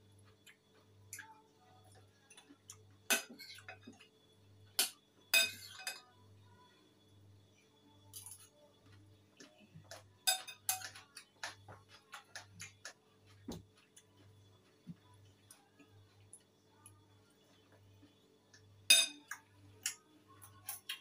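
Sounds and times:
fork clinking against bowl: 9.9s - 11.6s, 18.9s - 20.0s.

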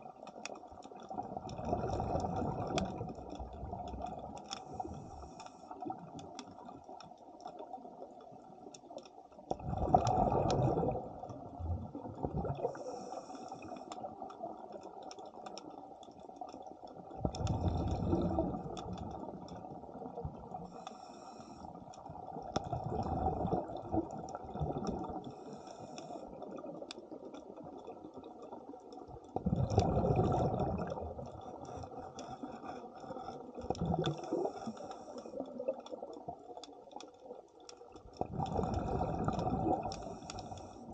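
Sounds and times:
exhaled air bubbling underwater: 0.0s - 40.9s
faint crackling clicks: 0.0s - 40.9s
underwater hiss: 12.6s - 13.9s, 20.6s - 21.8s, 25.2s - 26.6s, 34.2s - 35.6s, 38.4s - 40.9s.

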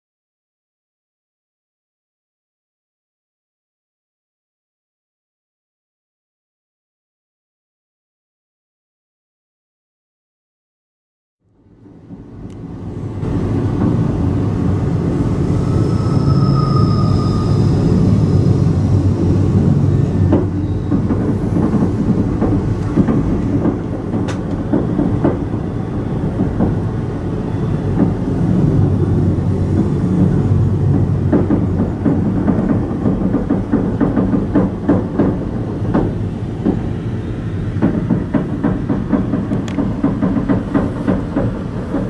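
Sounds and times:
railcar rumbling on rails: 11.5s - 42.0s
high squeal: 14.4s - 21.4s.

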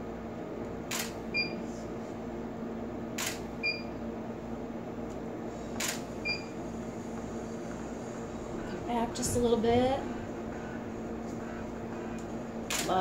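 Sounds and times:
camera shutter firing: 0.9s - 1.2s, 3.2s - 3.4s, 5.8s - 6.0s, 12.7s - 12.9s.

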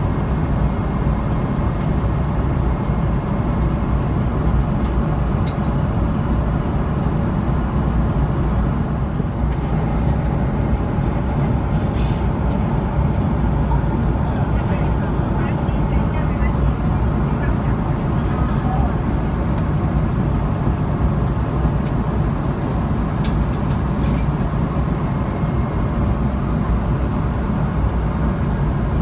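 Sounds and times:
airplane cabin rumble: 0.0s - 29.0s.

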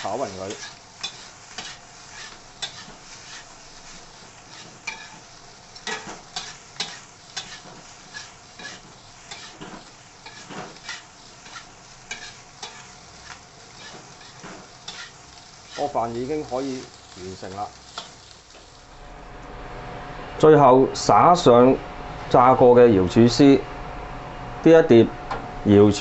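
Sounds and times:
spatula scraping wok: 0.0s - 19.2s
steady sizzling: 0.0s - 24.7s.

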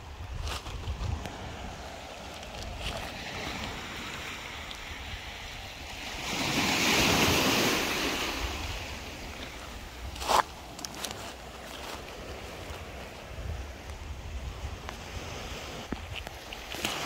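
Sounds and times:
wind rumble on microphone: 0.0s - 17.0s
surf washing onto stony beach: 0.1s - 17.0s.

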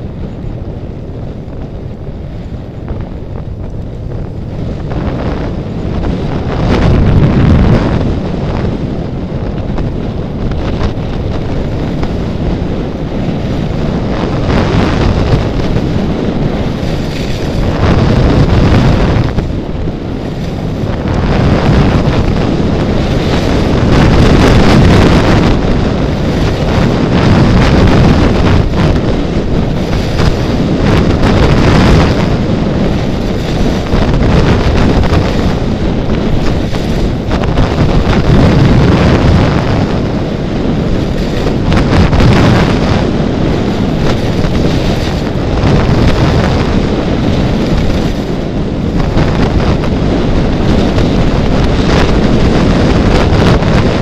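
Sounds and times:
wind buffeting microphone: 0.0s - 54.0s
skis scraping over packed snow: 10.6s - 39.3s.

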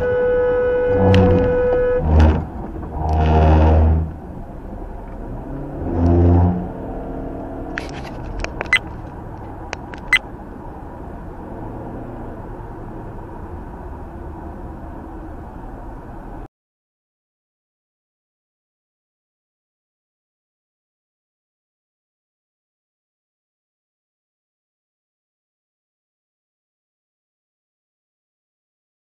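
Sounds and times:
car horn blasts: 0.0s - 4.0s
road noise inside car: 0.0s - 16.5s
sharp clicks: 9.7s - 10.2s.

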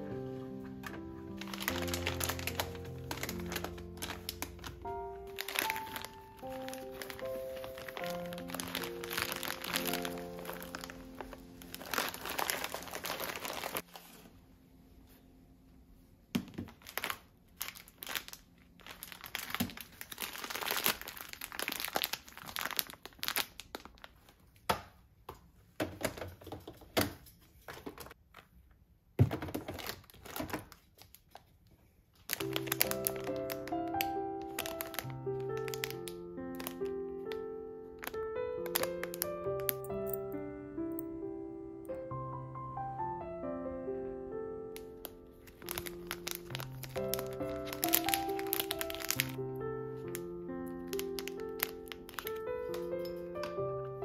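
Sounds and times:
soft background music: 0.0s - 16.1s, 32.3s - 54.0s
plastic bags crinkling: 0.7s - 14.3s, 16.4s - 24.7s, 29.4s - 40.3s, 44.8s - 53.6s.

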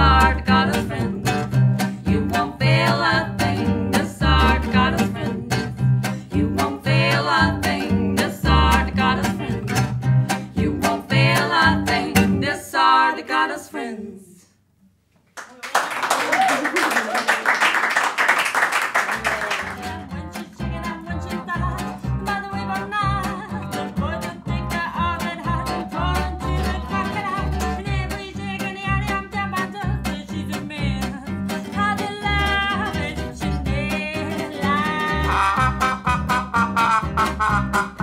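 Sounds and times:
acoustic swing music: 0.0s - 13.9s, 18.0s - 38.0s
small audience clapping: 15.2s - 19.9s.

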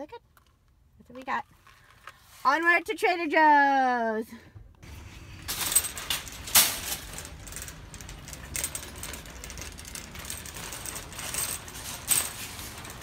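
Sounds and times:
wire basket rattling and clanking: 5.3s - 13.0s.

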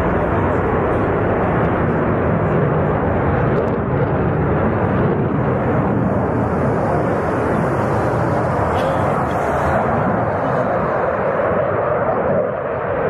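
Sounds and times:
jet engine rush: 0.0s - 13.0s.

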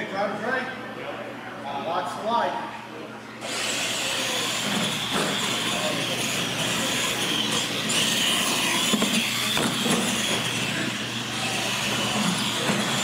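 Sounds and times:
whir of small motors and tyres: 3.4s - 13.0s.

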